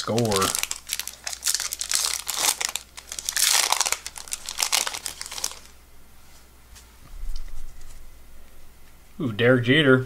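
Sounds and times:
wrapper crinkling and tearing: 0:00.0 - 0:05.8.

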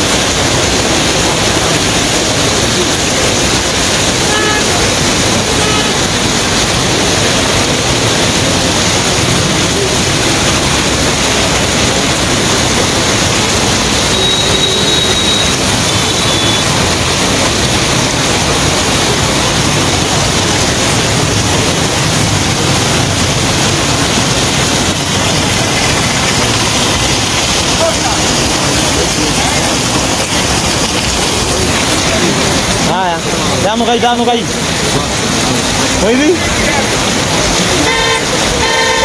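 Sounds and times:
heavy rain and floodwater rushing: 0:00.0 - 0:39.0
faint whistle-like tone: 0:14.1 - 0:15.5.

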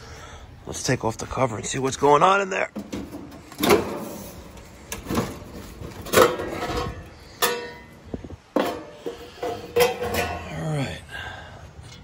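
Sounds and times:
metal panel knocks and clanks: 0:02.7 - 0:04.3, 0:04.9 - 0:10.4.

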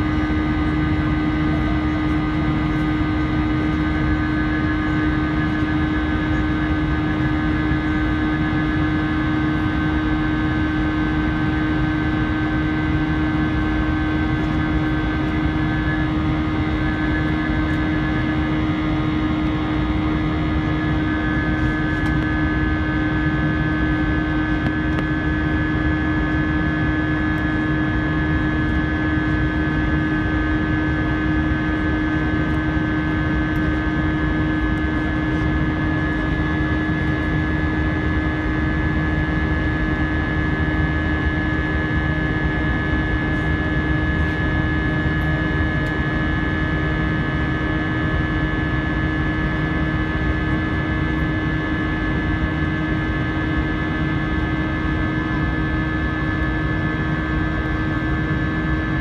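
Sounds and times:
engine whine: 0:00.0 - 0:59.0
jet engine rush in cabin: 0:00.0 - 0:59.0.

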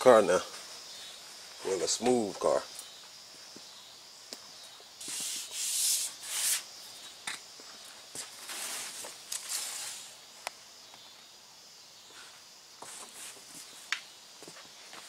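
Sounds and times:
rubbing and scuffing: 0:05.0 - 0:10.2, 0:12.1 - 0:15.0.

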